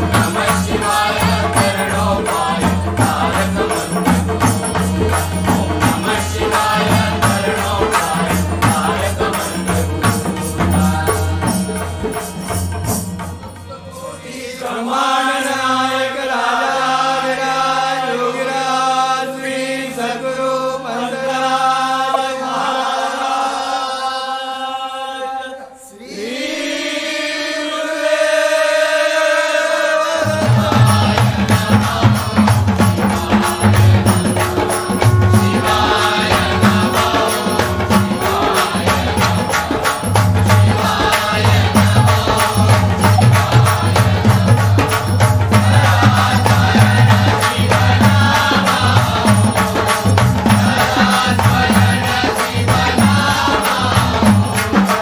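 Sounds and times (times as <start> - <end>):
rhythmic drums: 0.0 - 14.3, 30.2 - 55.0
long held chanted notes: 32.2 - 40.9.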